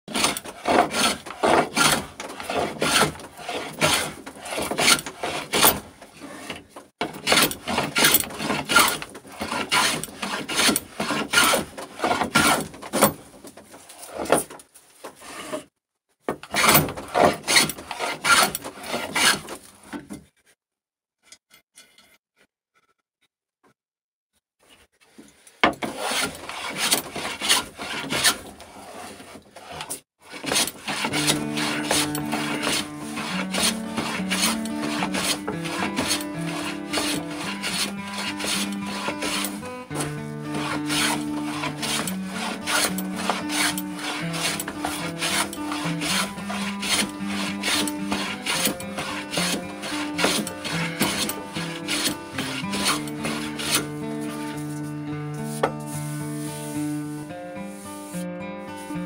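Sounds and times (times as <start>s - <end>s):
hand plane rasping on wood: 0.1s - 14.5s, 15.2s - 15.7s, 16.4s - 19.6s, 25.8s - 54.8s.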